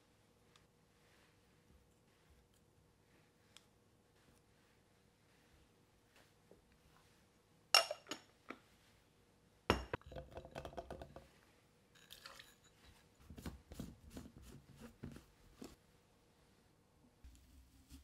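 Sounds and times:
kitchenware clattering: 7.8s - 8.4s, 9.7s - 11.2s
dishes clinking: 9.7s - 10.8s.

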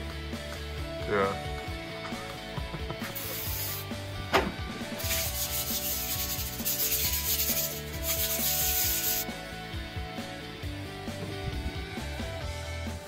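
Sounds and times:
hand rubbing metal surface: 3.1s - 3.8s, 5.0s - 9.3s
aerosol spray hissing: 3.2s - 3.8s, 5.0s - 9.3s.

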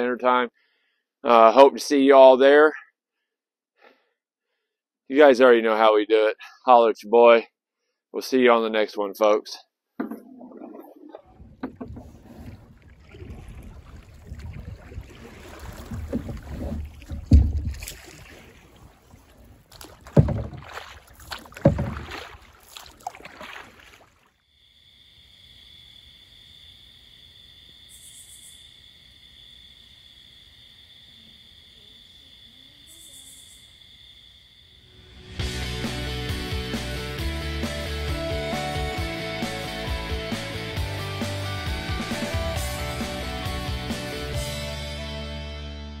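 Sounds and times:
loud thumps: 10.0s - 12.7s, 15.6s - 18.4s, 20.0s - 22.4s
paddle splashing water: 10.0s - 24.3s.

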